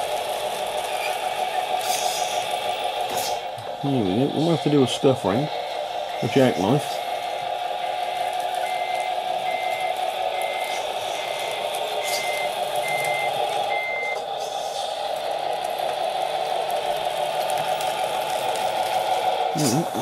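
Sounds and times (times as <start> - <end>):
model truck running: 0.0 - 20.0
electronic reversing beeper: 3.8 - 7.0, 7.7 - 14.3.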